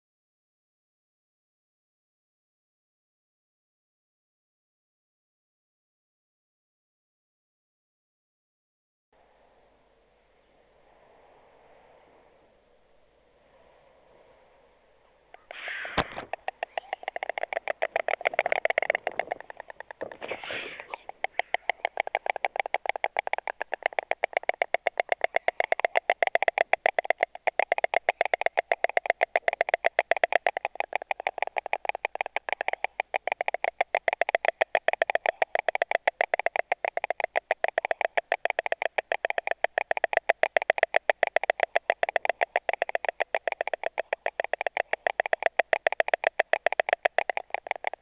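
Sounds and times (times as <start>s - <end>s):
wingbeats: 13.4s - 48.0s
storks clattering bills: 15.3s - 48.0s.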